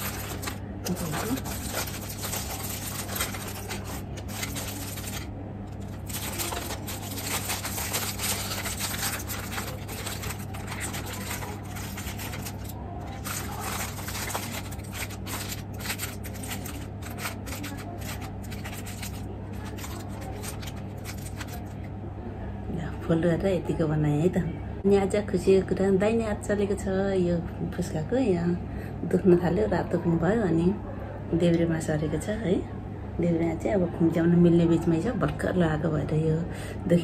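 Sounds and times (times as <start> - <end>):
aluminium foil crinkling: 0.0 - 21.9.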